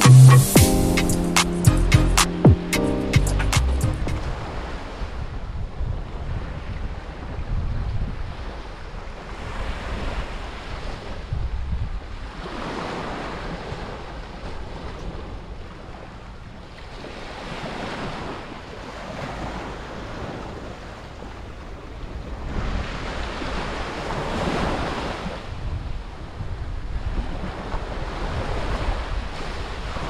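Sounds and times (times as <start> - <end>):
wind buffeting microphone: 4.0 - 16.0, 19.1 - 30.0.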